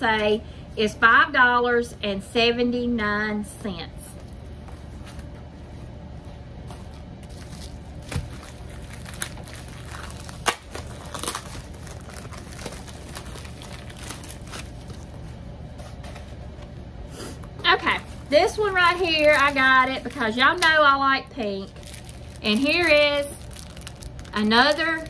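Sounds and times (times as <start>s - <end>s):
plastic crinkling and rustling: 4.2s - 16.6s, 17.8s - 25.0s
sharp plastic crackles: 7.2s - 15.2s, 21.6s - 25.0s.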